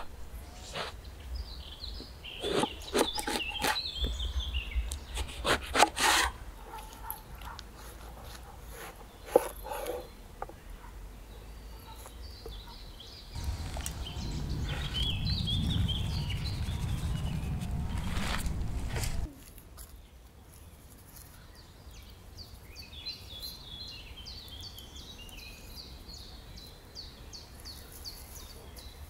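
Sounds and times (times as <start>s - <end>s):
songbirds chirping: 0.0s - 29.0s
low rumbling noise: 13.4s - 19.3s.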